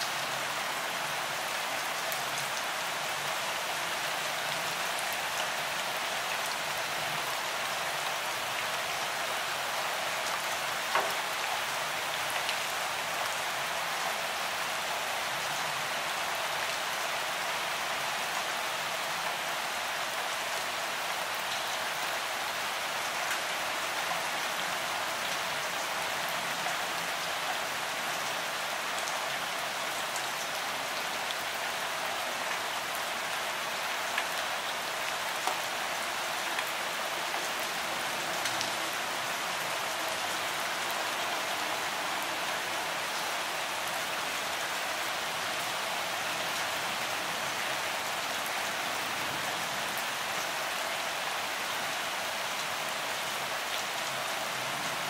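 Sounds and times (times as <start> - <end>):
steady rain hiss: 0.0 - 55.0
ticks of single raindrops: 10.8 - 11.4.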